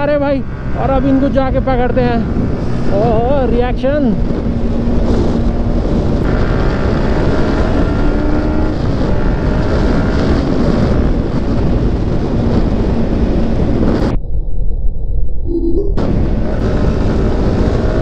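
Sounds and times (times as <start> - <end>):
motorcycle engine at speed: 0.0 - 14.2, 16.0 - 18.0
wind rush on microphone: 0.0 - 18.0.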